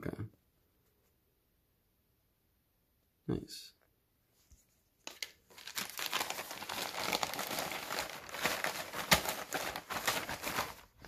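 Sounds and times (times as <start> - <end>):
plastic bag crinkling: 5.0 - 11.0.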